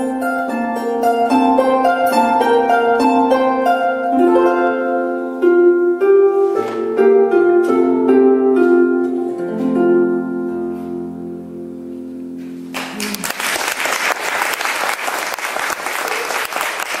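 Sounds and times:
harp plucked notes and chords: 0.0s - 12.8s.

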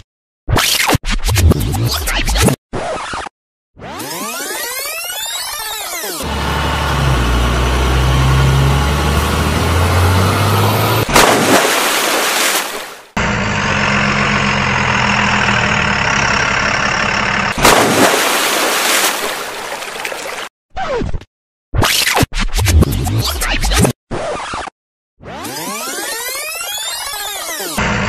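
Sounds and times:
truck engine running: 6.2s - 11.4s, 13.1s - 18.2s, 27.8s - 28.0s
loud rushing burst: 17.6s - 19.3s.

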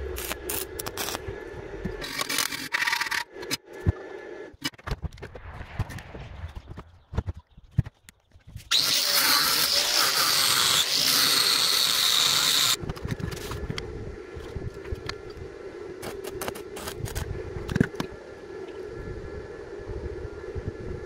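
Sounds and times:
steady hum: 0.0s - 21.0s
angle grinder grinding steel: 8.7s - 12.8s.

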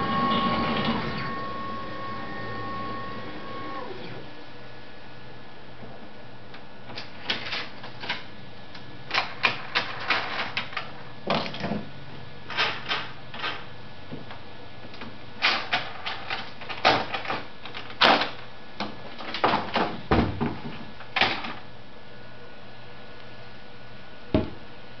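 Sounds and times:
steady hum: 0.0s - 9.8s.

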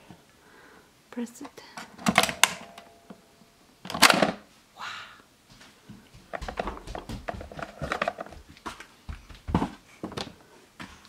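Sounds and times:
plastic clicks and knocks: 6.4s - 8.4s.

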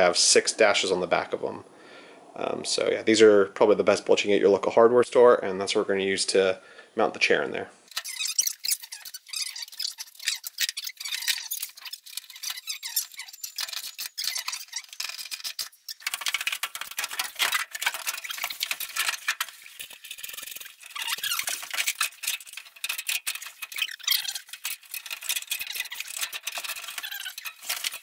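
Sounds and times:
metal clinking and scraping: 7.9s - 28.0s.

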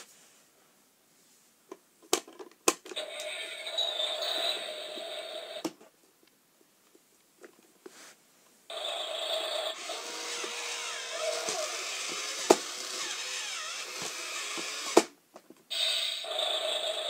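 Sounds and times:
toy truck mechanical grinding effect: 8.7s - 15.1s, 15.7s - 17.0s.

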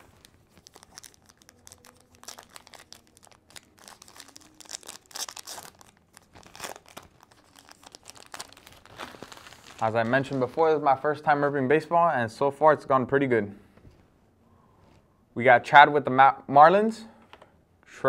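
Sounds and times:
wrapper tearing and crinkling: 0.0s - 10.4s.

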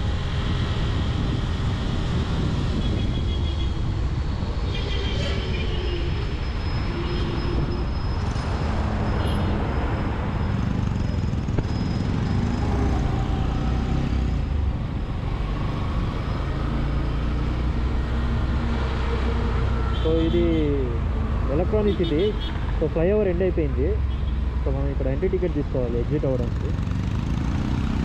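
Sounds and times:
road traffic: 0.0s - 28.0s
wind on microphone: 0.4s - 6.2s.

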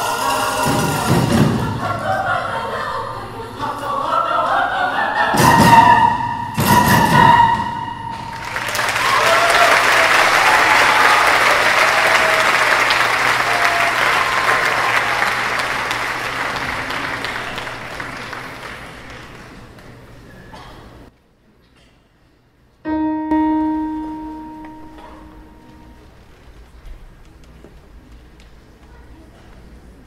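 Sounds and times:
cheers: 0.0s - 1.4s, 8.1s - 18.5s
choir singing: 0.0s - 8.7s
audience applause: 8.1s - 20.1s.

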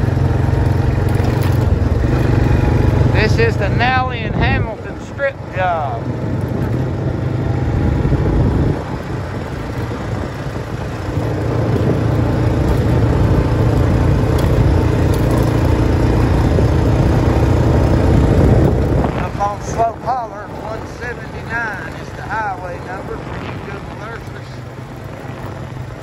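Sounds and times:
tyres on gravel road: 0.0s - 26.0s
vehicle engine running: 0.0s - 26.0s.

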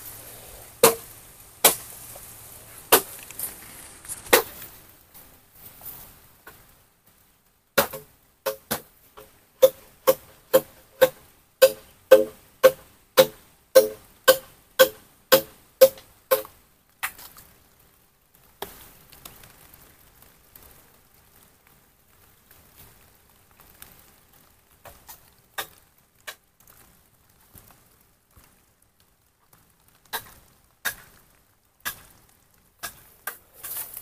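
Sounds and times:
faint rustling: 0.0s - 7.3s, 32.0s - 34.0s
bamboo struck with hollow knocks: 0.8s - 2.3s, 2.9s - 3.3s, 7.8s - 17.2s.

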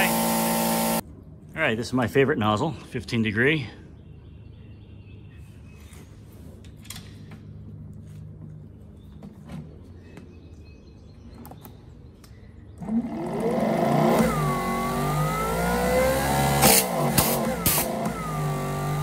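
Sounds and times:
pressure washer motor whine: 0.0s - 1.0s, 12.8s - 19.0s.

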